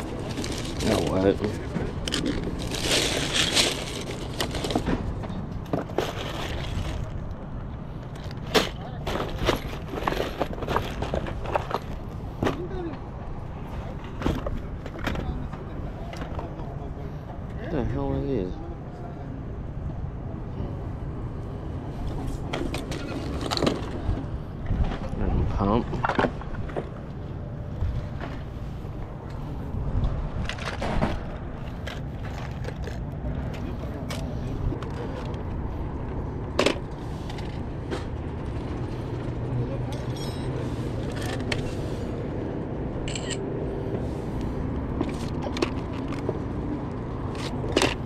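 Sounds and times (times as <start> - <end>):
plastic toys rummaged in a box: 0.0 - 7.4, 8.1 - 12.7, 22.5 - 24.0, 30.4 - 35.4, 45.0 - 46.4.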